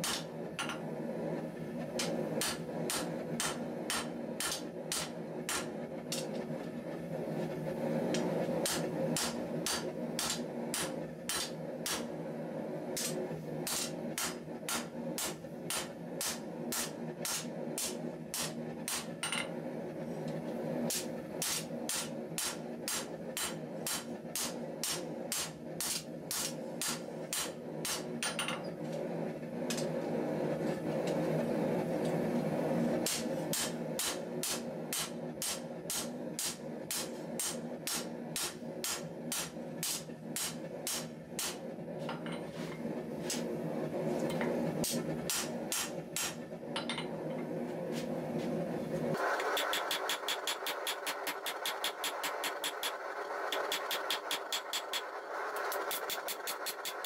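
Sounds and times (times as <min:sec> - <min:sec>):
hammer striking steel on anvil: 0:00.0 - 0:00.8, 0:02.0 - 0:06.4, 0:08.6 - 0:12.1, 0:13.0 - 0:19.5, 0:20.9 - 0:28.7, 0:33.1 - 0:42.4, 0:44.8 - 0:47.1, 0:49.5 - 0:55.0
steady hum: 0:00.0 - 0:57.0.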